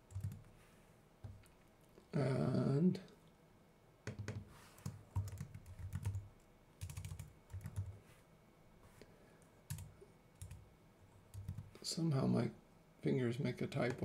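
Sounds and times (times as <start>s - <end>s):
typing on computer keyboard: 0.0s - 0.5s, 4.1s - 8.0s, 9.7s - 10.6s, 11.3s - 11.7s.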